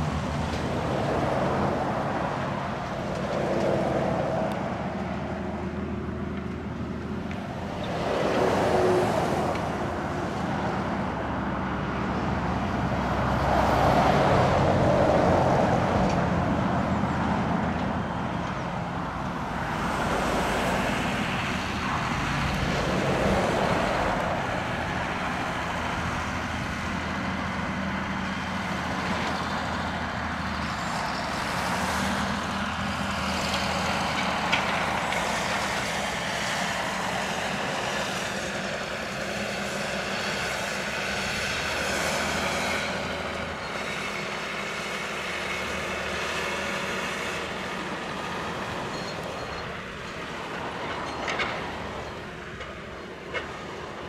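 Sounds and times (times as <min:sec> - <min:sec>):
tractor diesel engine running: 0:00.0 - 0:54.0.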